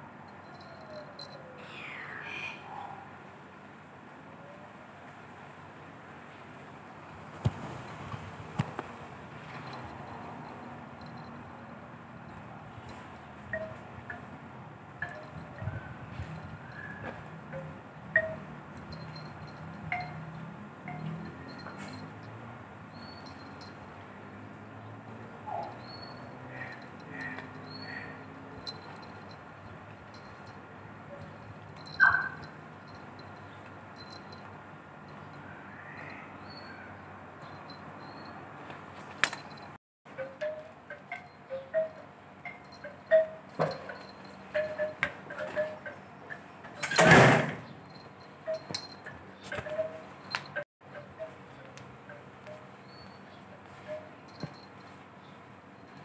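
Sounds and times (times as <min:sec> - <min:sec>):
light chiming pings: 0:00.4 - 0:01.6, 0:15.0 - 0:23.8, 0:30.1 - 0:34.5.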